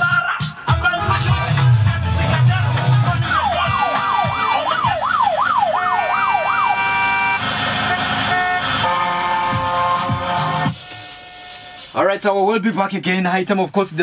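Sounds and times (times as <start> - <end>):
siren wail sound effect: 3.2 - 11.8.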